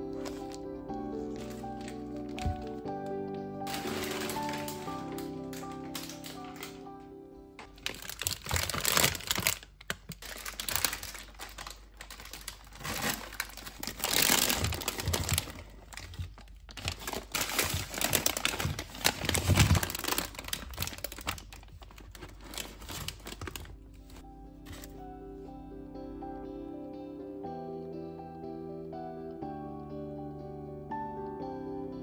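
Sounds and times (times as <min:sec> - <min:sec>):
paper and plastic bags crinkling: 0:00.0 - 0:07.0, 0:07.6 - 0:25.0
potatoes knocking onto paper: 0:01.3 - 0:02.9, 0:03.7 - 0:06.9, 0:07.6 - 0:24.9.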